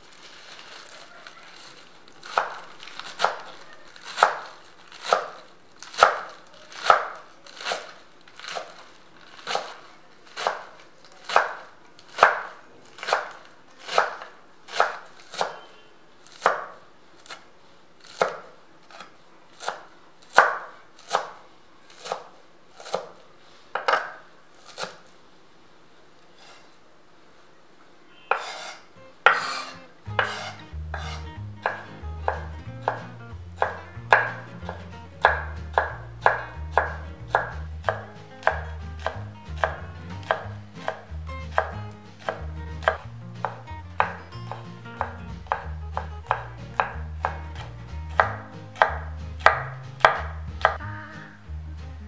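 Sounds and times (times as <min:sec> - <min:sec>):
knife chopping on wooden board: 0:02.2 - 0:08.8, 0:10.4 - 0:15.7, 0:16.3 - 0:17.4, 0:18.1 - 0:21.4, 0:22.0 - 0:23.2, 0:23.8 - 0:25.0, 0:28.3 - 0:50.8.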